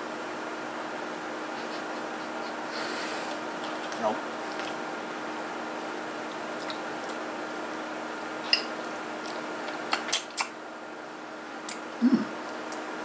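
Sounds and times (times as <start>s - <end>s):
room hum: 0.0s - 13.0s.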